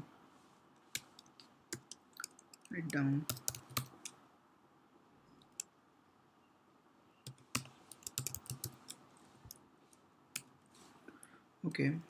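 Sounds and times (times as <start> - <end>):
computer keyboard typing: 1.0 - 4.2, 7.2 - 9.0.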